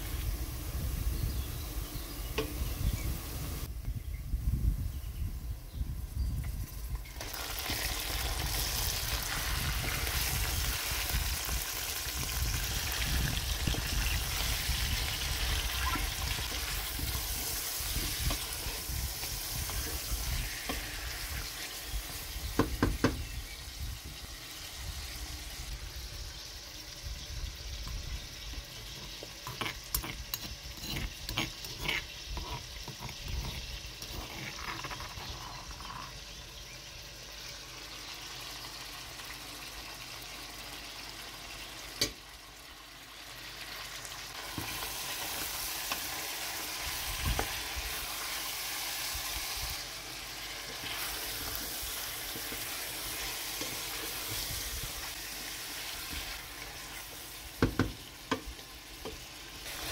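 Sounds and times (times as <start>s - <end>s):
chicken sizzling in hot oil: 0.0s - 3.7s, 5.2s - 59.9s
spoon scraping in stone mortar: 28.9s - 36.1s.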